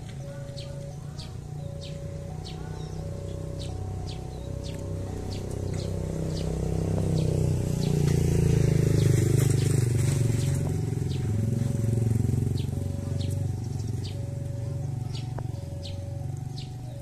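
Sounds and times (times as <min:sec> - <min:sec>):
diesel locomotive engine drone: 0:00.0 - 0:17.0.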